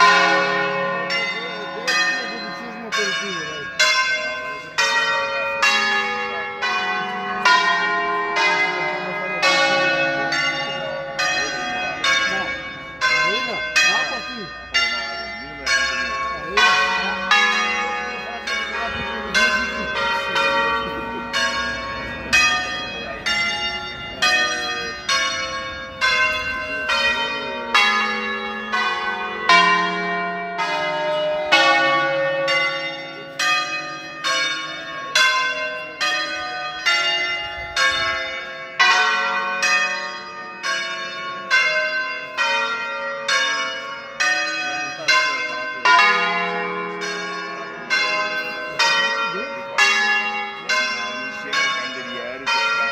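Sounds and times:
church bells ringing a melody: 0.0s - 52.9s.

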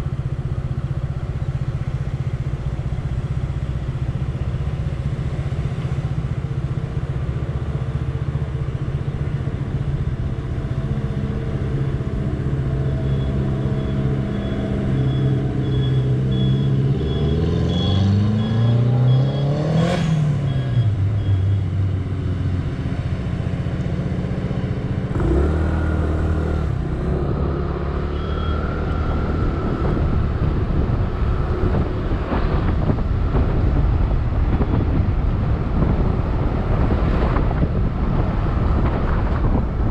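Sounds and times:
road and wind noise: 0.0s - 39.9s
high beep: 12.9s - 21.6s.

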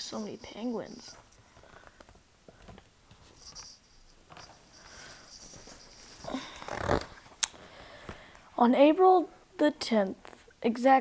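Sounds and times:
book rustling: 0.6s - 7.3s.

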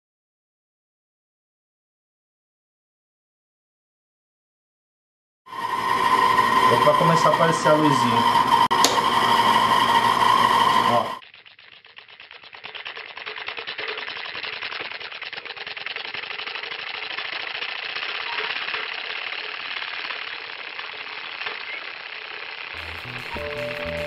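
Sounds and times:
film projector clattering: 5.9s - 24.0s
music with low sustained notes: 22.8s - 24.0s.

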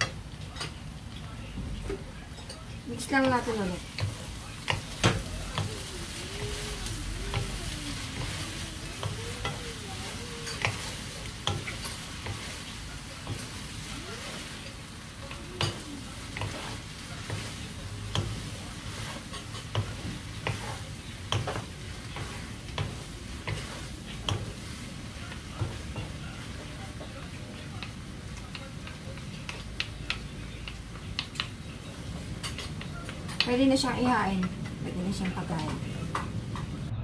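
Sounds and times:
fishcake sizzling in pan: 2.4s - 36.9s
wooden spatulas knocking pan: 15.3s - 24.7s.

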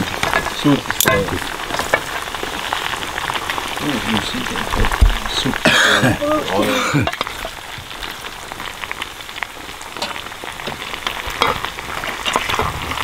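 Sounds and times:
fat sizzling and crackling: 0.0s - 13.0s
metal tongs knocking on stones: 0.2s - 2.1s.

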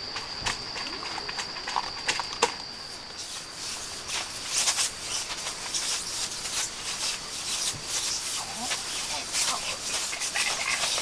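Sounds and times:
dog paws scuffling on tent groundsheet: 3.2s - 11.0s.

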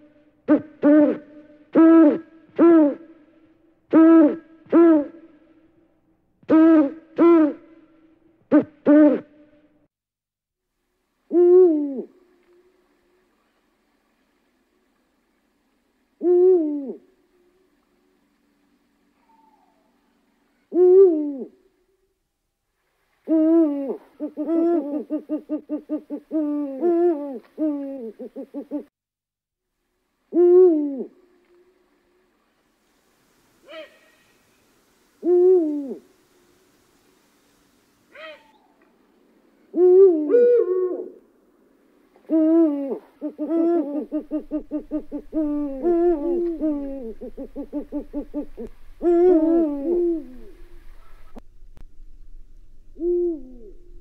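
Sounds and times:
owl hooting: 0.0s - 3.0s, 3.9s - 5.3s, 6.5s - 7.7s, 8.5s - 9.3s, 11.3s - 12.7s, 16.2s - 17.2s, 19.2s - 20.0s, 20.7s - 21.6s, 23.3s - 28.9s, 33.6s - 34.4s, 35.2s - 36.2s, 38.1s - 38.8s, 39.7s - 41.2s, 42.3s - 51.4s, 52.9s - 54.0s.

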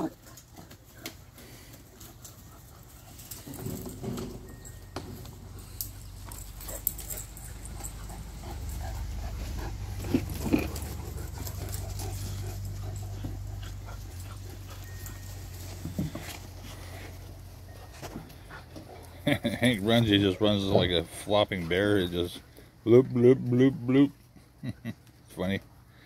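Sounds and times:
dogs scuffling: 0.0s - 19.2s.

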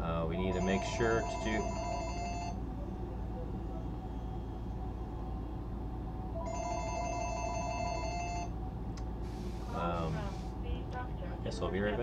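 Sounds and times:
telephone ringing: 0.5s - 2.6s, 6.4s - 8.5s.

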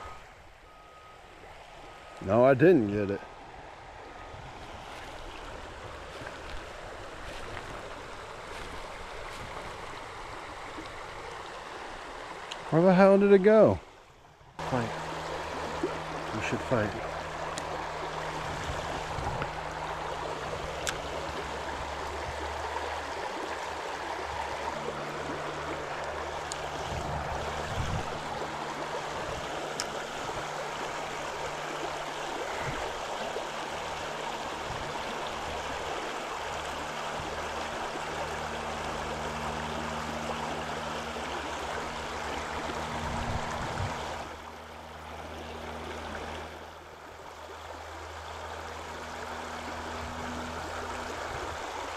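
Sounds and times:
river water rushing over rocks: 14.6s - 51.9s.

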